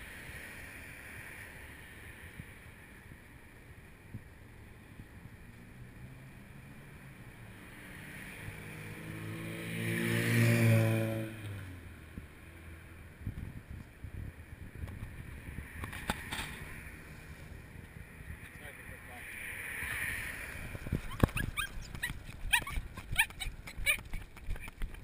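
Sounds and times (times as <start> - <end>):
car driving past: 5.4 - 13.1, 15.1 - 22.0
wind buffeting microphone: 13.1 - 16.8, 19.8 - 25.0.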